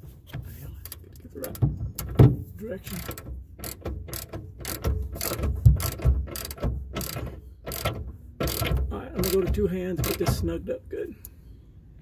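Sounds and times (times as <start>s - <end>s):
metal fitting clicks and scrapes: 2.9s - 10.4s.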